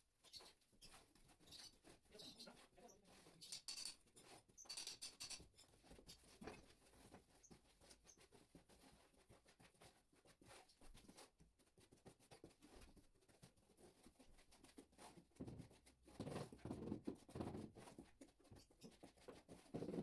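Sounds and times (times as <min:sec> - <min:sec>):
hand tools scraping tiles: 0:00.3 - 0:06.8.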